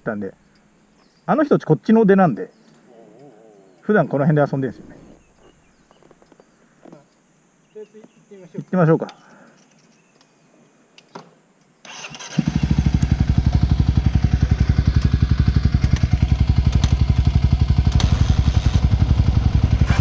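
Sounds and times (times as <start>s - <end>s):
motorcycle engine starting and idling: 11.8s - 20.0s.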